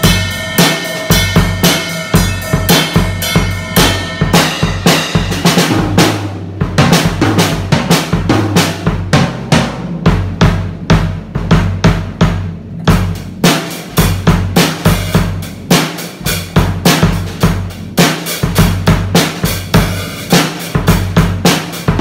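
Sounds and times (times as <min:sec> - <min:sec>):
cymbal wash: 0:00.0 - 0:05.5
acoustic drum kit beat: 0:00.0 - 0:22.0.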